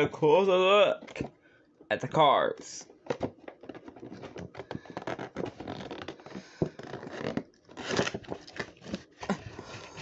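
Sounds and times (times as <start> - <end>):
fingers scratching cardboard box: 3.8 - 9.1.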